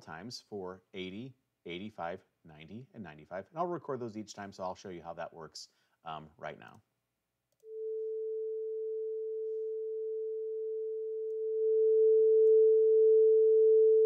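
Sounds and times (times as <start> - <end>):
steady sine tone: 7.6 - 14.0.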